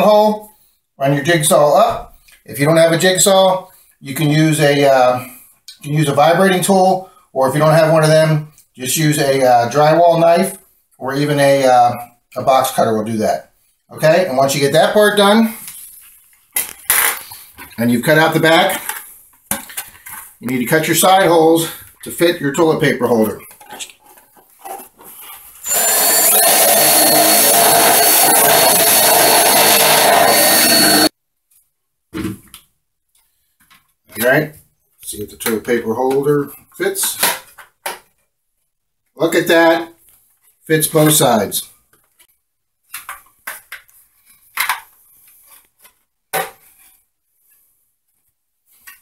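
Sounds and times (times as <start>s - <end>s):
drill drilling plastic: 25.6s - 31.1s
thin high whine: 25.6s - 31.1s.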